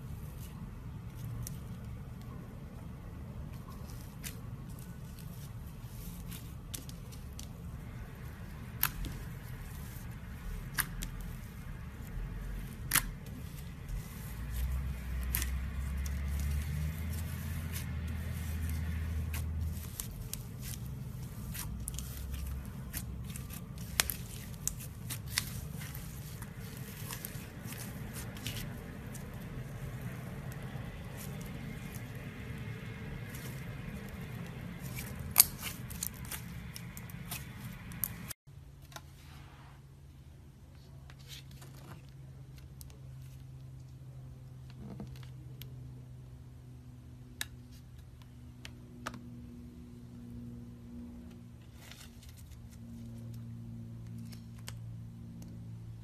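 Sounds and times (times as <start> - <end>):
slime squishing: 3.4 - 38.4.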